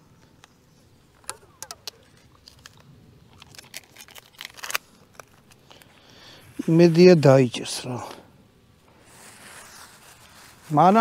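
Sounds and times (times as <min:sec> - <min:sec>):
packing tape ripping off roll: 0:01.2 - 0:06.0.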